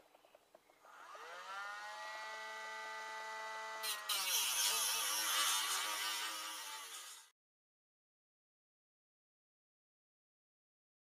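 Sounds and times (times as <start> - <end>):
rotary tool whining: 0.1 - 7.3.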